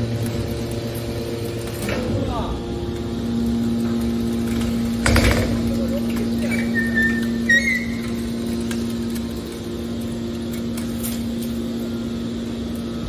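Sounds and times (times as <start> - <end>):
hydraulic pump motor hum: 0.0 - 13.0
high squeaks: 6.4 - 8.2.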